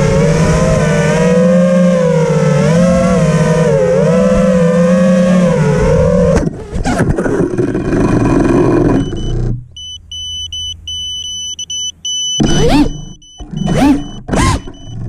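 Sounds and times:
motors revving with whine: 0.0s - 15.0s
high-pitched buzzer beeping: 9.0s - 15.0s.

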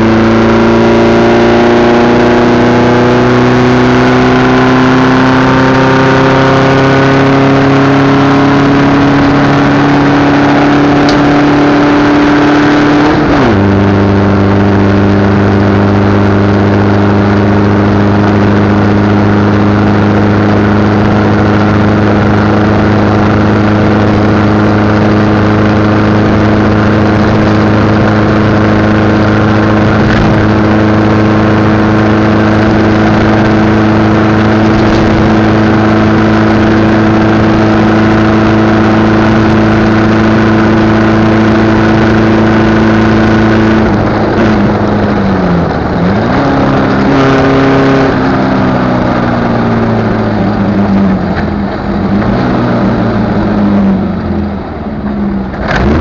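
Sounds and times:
racing engine at high revs: 0.0s - 56.0s.

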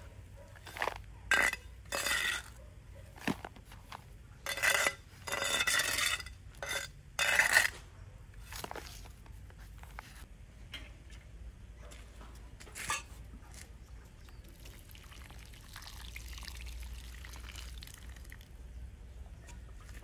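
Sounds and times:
hard objects scraping and clinking: 0.5s - 7.8s.

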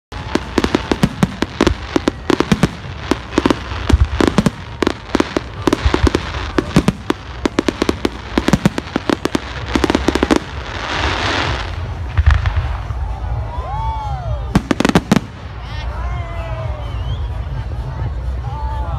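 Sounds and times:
fireworks sharp bangs: 0.1s - 13.2s, 14.6s - 15.8s
fireworks crackling hiss: 0.1s - 13.5s, 14.5s - 16.0s.

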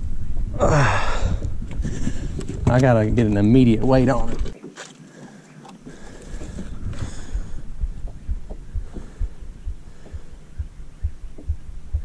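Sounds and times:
low thuds and knocks in boat: 5.9s - 12.0s.

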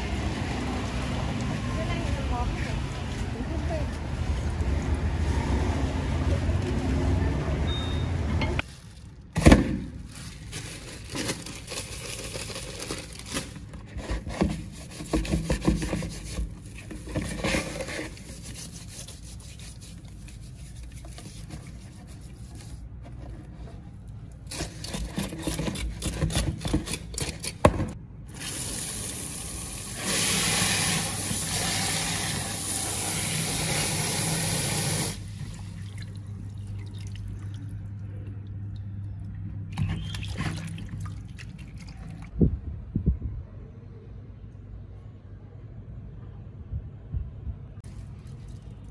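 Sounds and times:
scraping and rubbing fish skin: 10.0s - 27.6s
cleaver scraping fish scales: 13.9s - 27.6s
water running into a basin: 28.4s - 42.3s.

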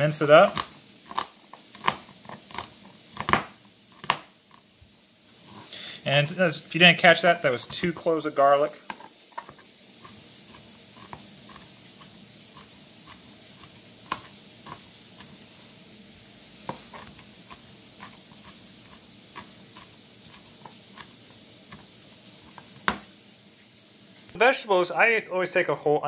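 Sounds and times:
knife tapping on cutting board: 22.8s - 23.1s.

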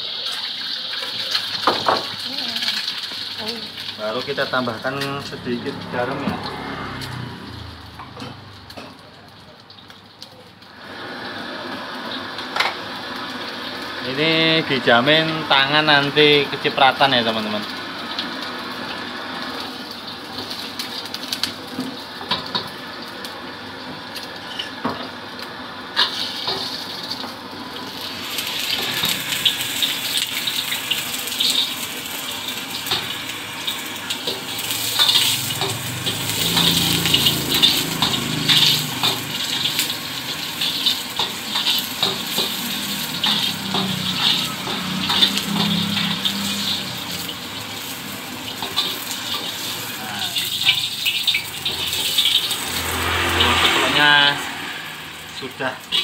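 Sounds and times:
egg sizzling in hot oil: 0.0s - 56.0s
metal spatula scraping wok: 24.4s - 24.8s.

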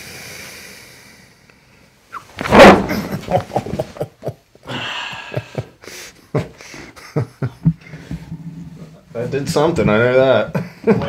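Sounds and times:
man laughing breathily: 2.9s - 8.1s.

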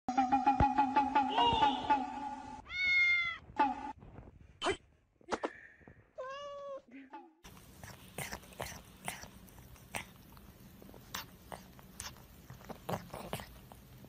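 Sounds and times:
kitten meowing: 2.6s - 3.4s.

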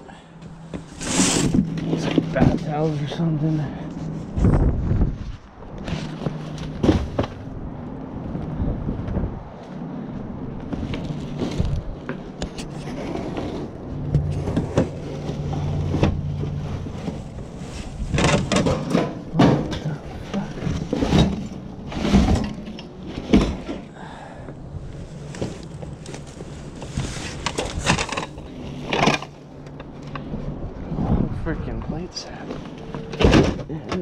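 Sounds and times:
low steady hum: 0.0s - 34.0s
rustling: 0.7s - 7.5s, 10.6s - 24.0s, 24.8s - 30.3s
household goods knocking and thumping: 18.0s - 24.0s.

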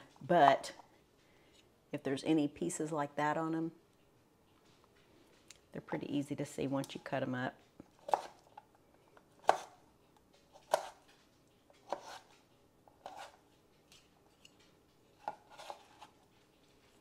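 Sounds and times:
knife chopping on cutting board: 9.4s - 9.7s, 10.7s - 11.0s, 11.8s - 12.2s.

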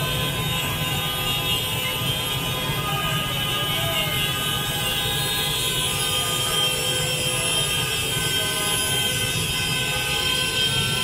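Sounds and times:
vehicle horns tooting: 0.0s - 11.0s.

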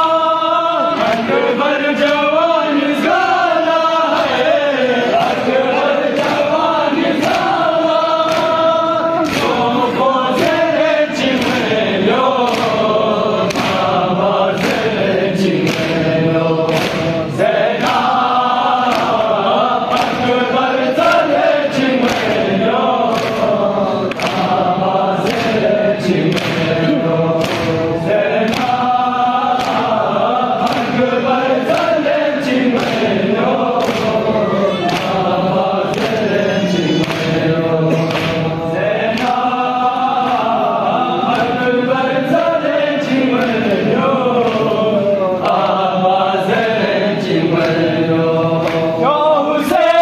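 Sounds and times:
crowd of men chanting: 0.0s - 50.0s
hands slapping chests: 0.9s - 49.0s.

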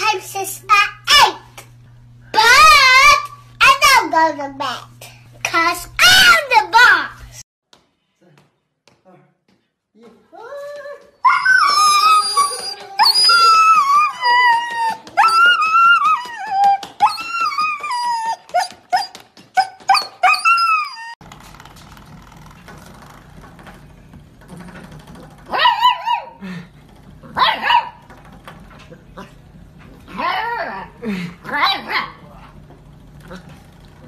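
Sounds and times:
puppy howling: 10.5s - 21.2s, 25.5s - 26.4s, 30.1s - 32.2s
dog whining and howling: 11.2s - 21.2s, 25.5s - 26.4s, 30.1s - 32.2s.

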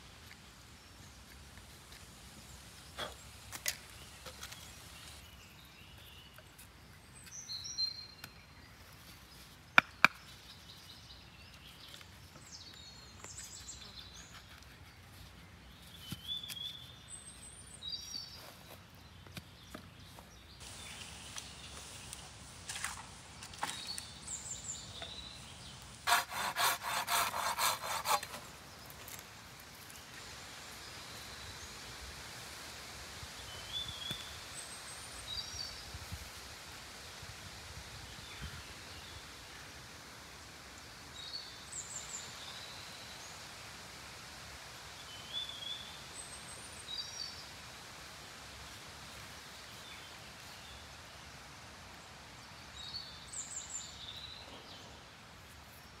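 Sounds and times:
hand saw cutting wood: 26.0s - 28.5s.

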